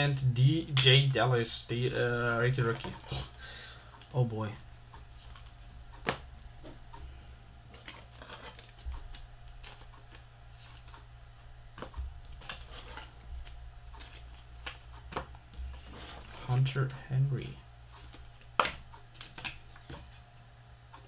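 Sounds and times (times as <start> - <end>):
steady low hum: 0.0 - 21.0
trading cards clicking and snapping: 2.6 - 6.8, 11.7 - 15.4, 18.0 - 20.2.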